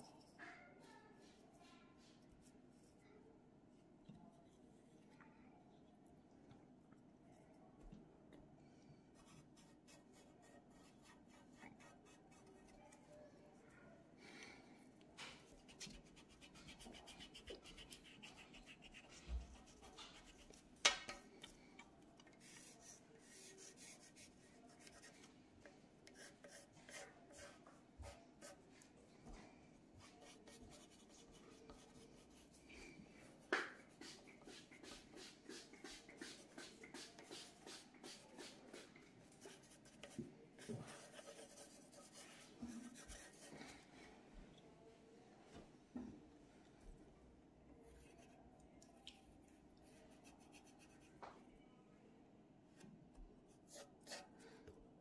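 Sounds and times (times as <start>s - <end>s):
pencil scratching on paper: 9.2s - 12.9s, 15.4s - 21.2s, 22.4s - 25.3s, 26.1s - 28.6s, 30.0s - 32.6s, 33.8s - 43.6s, 53.6s - 54.3s.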